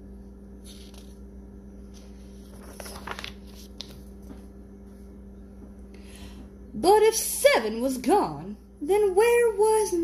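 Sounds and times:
low electrical hum: 0.0s - 10.0s
paper page rustling: 0.6s - 1.2s, 1.8s - 4.6s.

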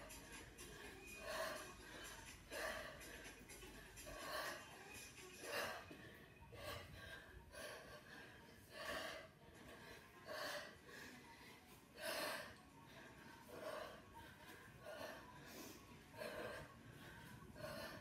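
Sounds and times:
woman breathing hard: 0.0s - 18.0s.

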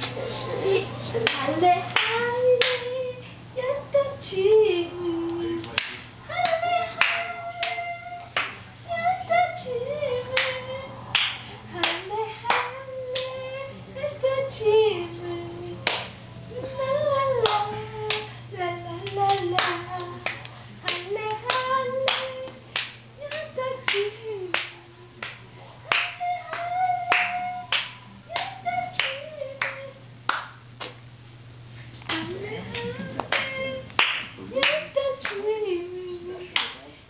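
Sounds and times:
high voice singing wordless melody: 0.6s - 11.0s, 16.5s - 25.2s, 32.1s - 37.0s
hands clapping: 1.2s - 2.9s, 5.6s - 7.8s, 8.4s - 8.6s, 10.4s - 13.3s, 15.8s - 16.2s, 19.0s - 31.0s, 32.0s - 35.4s, 36.6s - 36.9s.

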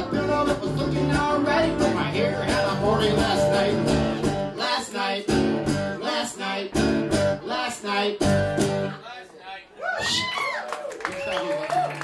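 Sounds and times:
bass guitar: 0.0s - 4.6s, 5.2s - 6.0s, 6.7s - 9.0s
acoustic guitar strumming: 0.0s - 9.0s.

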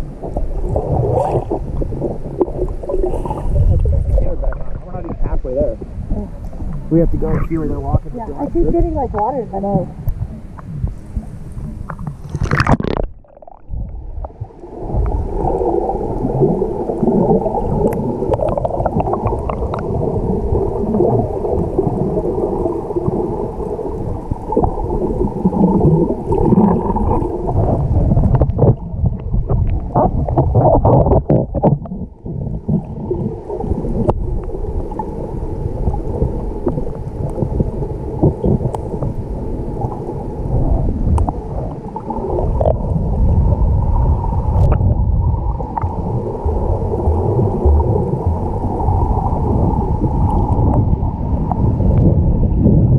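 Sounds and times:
water splash: 0.0s - 52.2s
underwater sloshing and gurgling: 0.0s - 52.9s.

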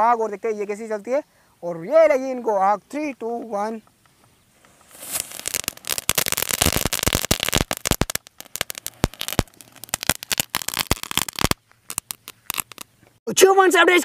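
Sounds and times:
crackling firework fountain: 4.0s - 13.0s.

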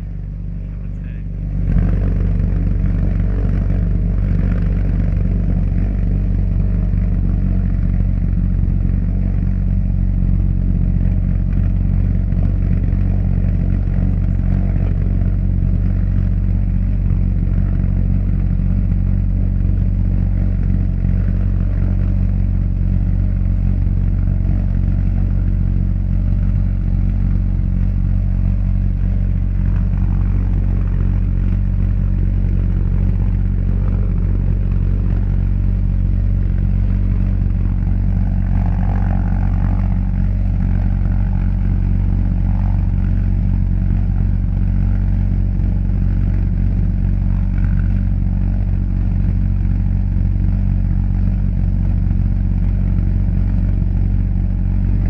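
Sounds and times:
pulse jet engine droning: 0.0s - 55.0s.

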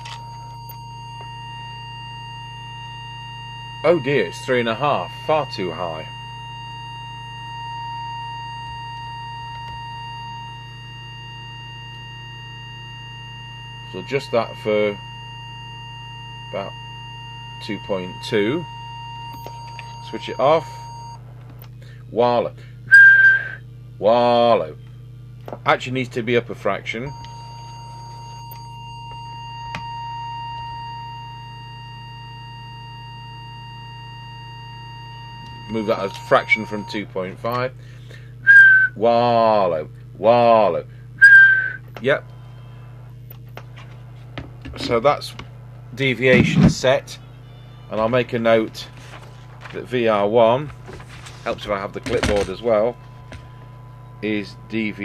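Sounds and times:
steady test tone: 0.0s - 21.2s, 25.7s - 55.0s
low hum: 0.0s - 55.0s
click: 21.5s - 21.8s.

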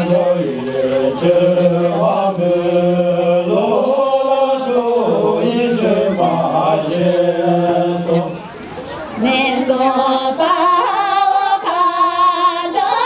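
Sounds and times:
voices singing chant-like notes: 0.0s - 8.6s, 9.2s - 13.0s.

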